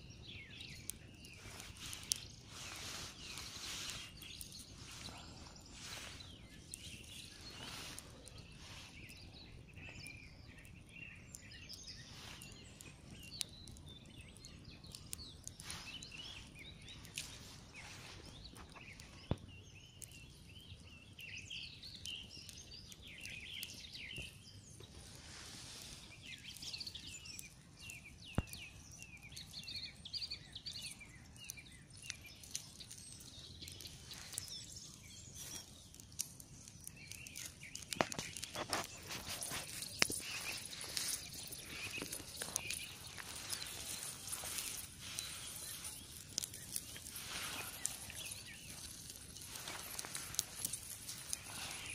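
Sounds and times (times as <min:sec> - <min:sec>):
birds chirping: 0:00.0 - 0:51.9
campfire crackling: 0:00.0 - 0:51.9
sharp fire pops: 0:27.8 - 0:29.0.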